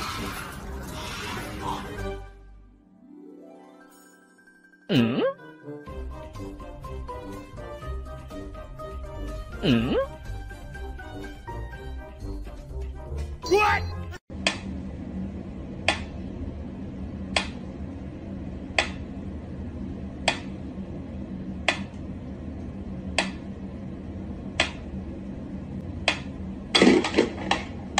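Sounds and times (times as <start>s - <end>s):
low steady hum: 14.3s - 27.9s.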